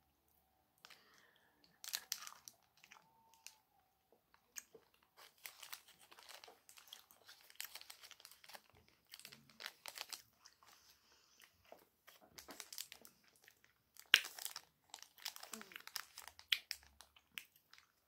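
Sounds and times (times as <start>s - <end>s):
crunching and chewing chocolate bar: 0.8s - 3.6s, 4.3s - 18.0s
wrapper crinkling: 1.8s - 3.6s, 4.6s - 10.8s, 12.1s - 17.9s.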